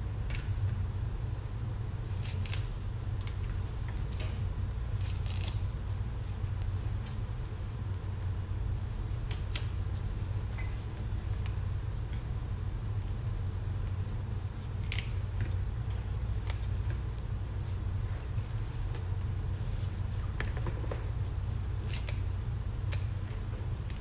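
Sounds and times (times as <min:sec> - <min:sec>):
steady low hum: 0:00.0 - 0:24.0
leaves snapping and rustling: 0:02.0 - 0:05.8, 0:09.0 - 0:11.6, 0:12.3 - 0:17.8, 0:18.4 - 0:24.0.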